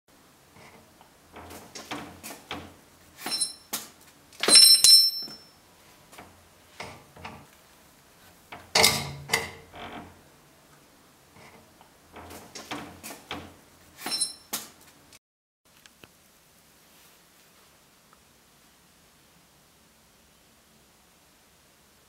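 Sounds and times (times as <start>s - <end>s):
sharp metallic clinks: 4.4s - 5.6s, 14.0s - 14.5s
knocks and clatters: 11.4s - 14.7s.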